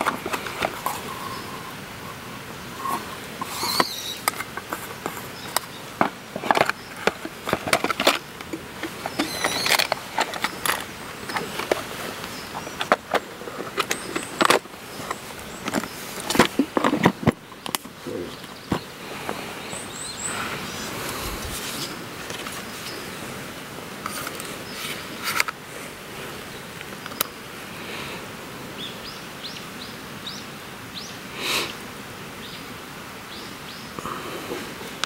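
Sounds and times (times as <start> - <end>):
plastic box clattering: 3.4 - 18.9.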